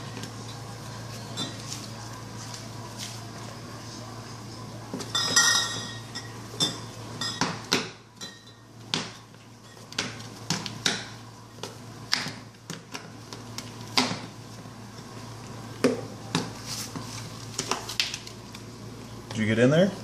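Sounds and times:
glass bottles clinking together: 5.1 - 7.5.

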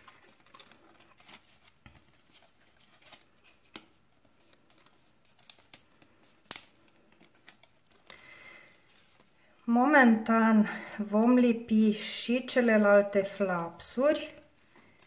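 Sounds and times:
card rustling and crinkling: 0.0 - 9.6.

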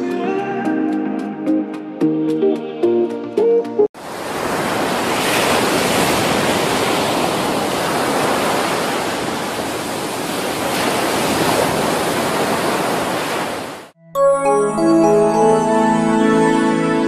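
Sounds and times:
ocean waves breaking: 4.0 - 13.9.

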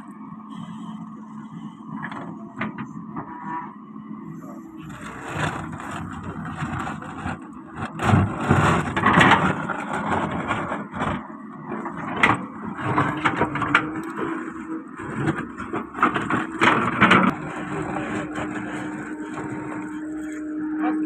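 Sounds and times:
excavator diesel engine running: 0.0 - 21.0
bucket scraping stony soil: 4.6 - 21.0.

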